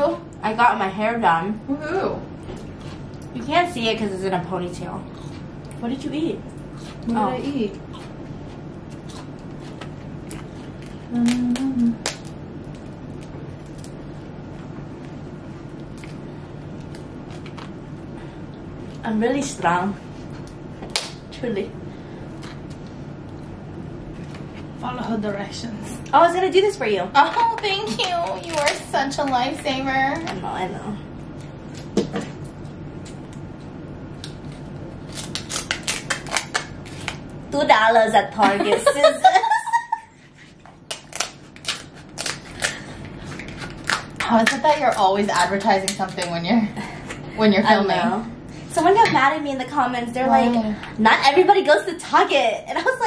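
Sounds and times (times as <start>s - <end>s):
woman humming: 11.1s - 12.1s.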